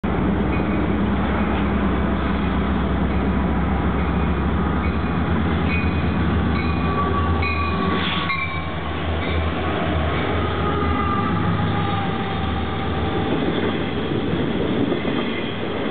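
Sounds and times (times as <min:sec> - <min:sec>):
diesel locomotive engine rumble: 0:00.0 - 0:15.9
train wheels on rails: 0:00.0 - 0:15.9.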